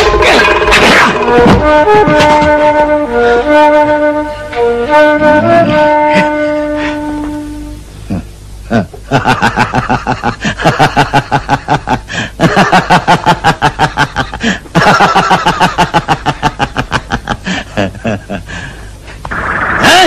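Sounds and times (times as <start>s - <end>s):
man laughing loudly: 5.2s - 6.7s, 8.1s - 18.7s.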